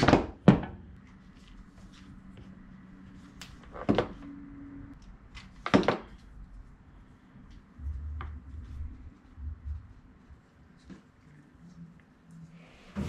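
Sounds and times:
low hum: 6.3 - 10.8.

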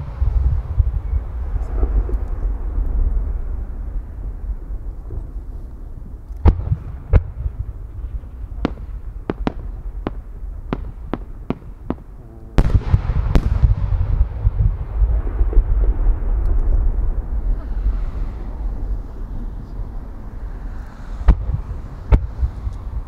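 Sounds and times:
heavy firework booms: 0.0 - 5.5, 6.4 - 19.6, 21.2 - 23.0
rolling rumble: 0.0 - 23.0
firework cracks: 6.2 - 19.4.

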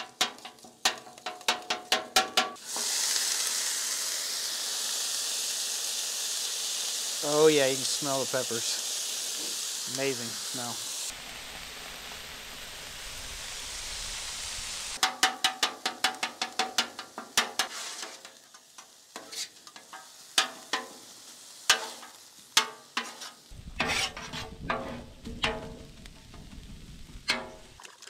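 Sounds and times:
sausage and vegetables sizzling: 0.0 - 27.8
metal spatulas scraping griddle: 17.4 - 18.3, 19.2 - 19.6, 21.7 - 27.7.

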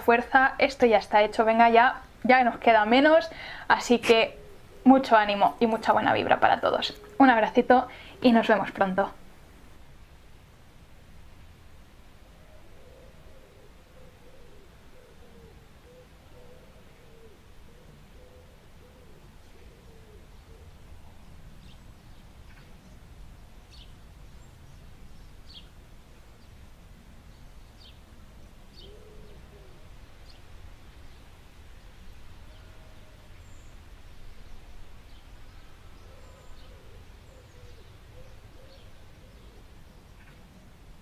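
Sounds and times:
owl hooting softly: 3.4 - 5.0, 12.3 - 21.2, 28.8 - 30.5, 35.2 - 40.5.

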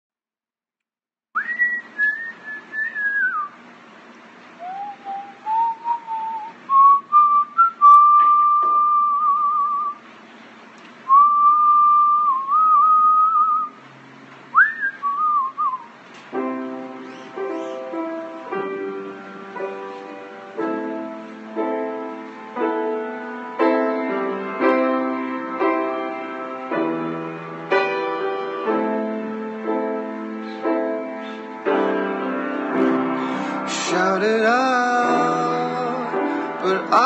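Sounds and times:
man whistling a melody: 1.4 - 3.6, 4.6 - 10.0, 11.1 - 13.8, 14.5 - 15.9.

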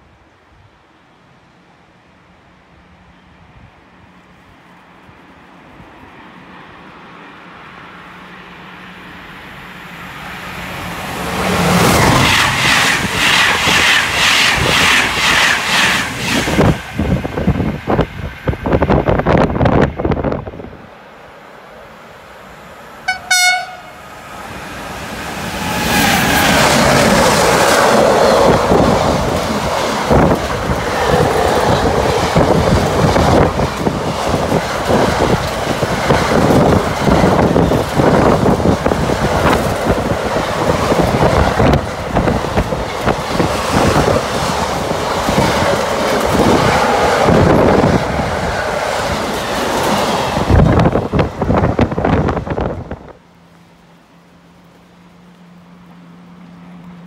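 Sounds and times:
freight train rushing past: 0.0 - 57.0
locomotive horn blast: 23.0 - 24.2.

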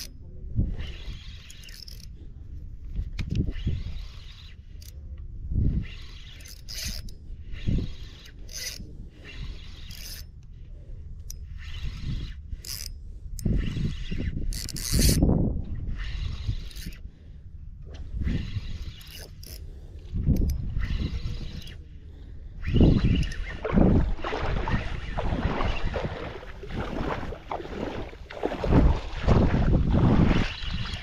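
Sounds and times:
fishing reel gears whirring: 0.0 - 31.0
low rumbling thumps: 22.6 - 30.9.

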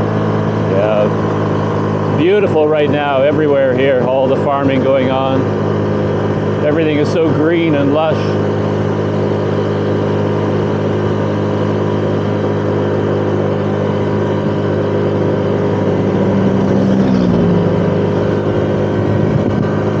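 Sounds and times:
road noise: 0.0 - 20.0
scooter engine running: 0.0 - 20.0
louder tone dropping in pitch: 9.1 - 20.0.

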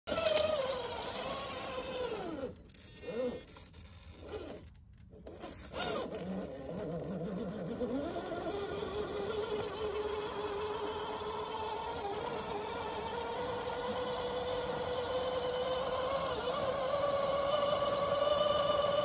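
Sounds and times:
electric motor whining: 0.1 - 19.0.

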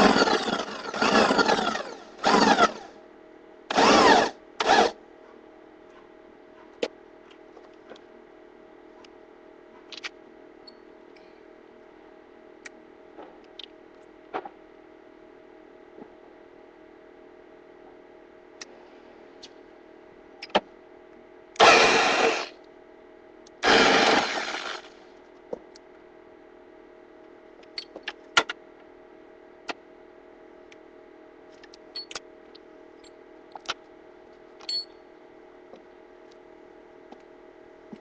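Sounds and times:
faint hum: 0.0 - 38.0
power tool bursts: 21.6 - 22.5, 23.6 - 24.9.

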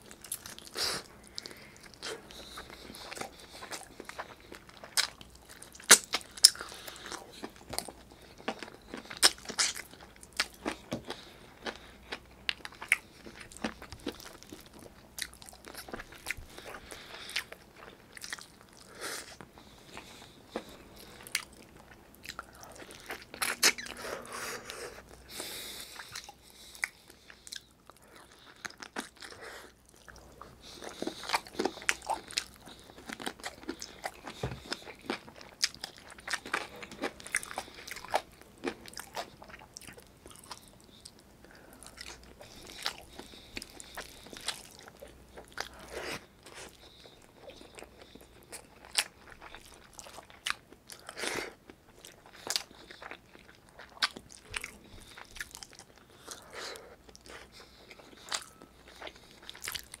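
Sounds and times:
close chewing with wet mouth clicks: 0.0 - 24.0, 25.1 - 60.0.

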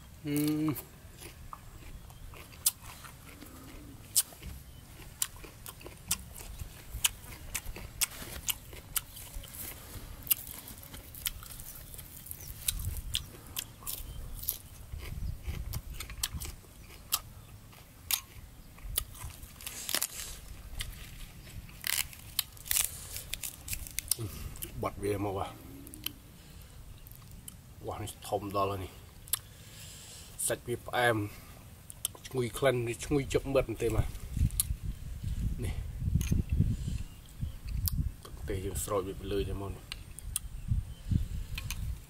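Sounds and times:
person chewing food: 0.3 - 24.8
crunches and wet mouth clicks: 34.4 - 34.8, 37.6 - 38.4, 40.0 - 40.5.

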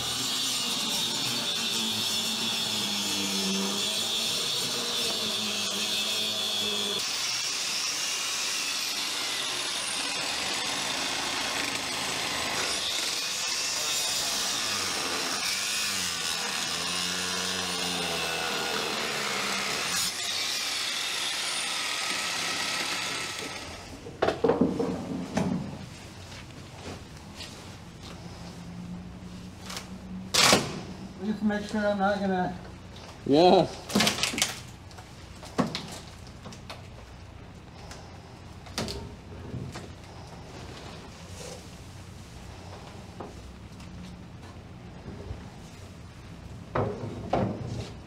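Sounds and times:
power tool cutting wood: 0.0 - 24.0.

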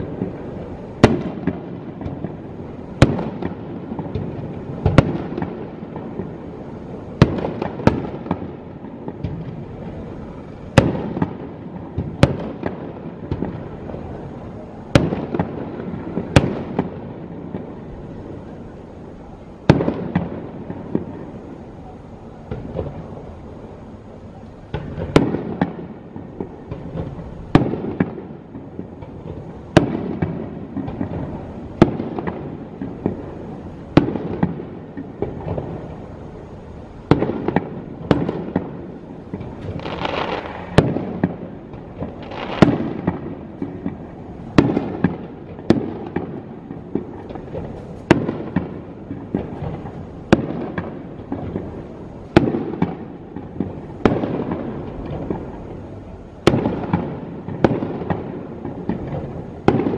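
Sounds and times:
firework crackling: 0.0 - 59.9
firework shells bursting: 37.1 - 55.7.

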